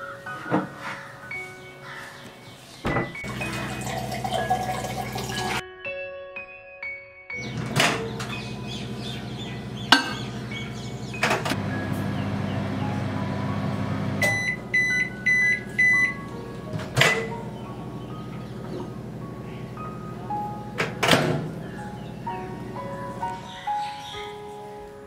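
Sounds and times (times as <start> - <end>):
microwave oven humming: 3.2 - 5.6, 7.4 - 23.4.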